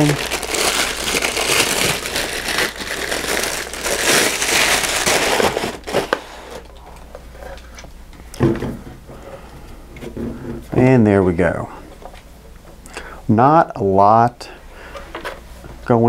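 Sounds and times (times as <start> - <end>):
plastic bag crinkling: 0.0 - 7.0.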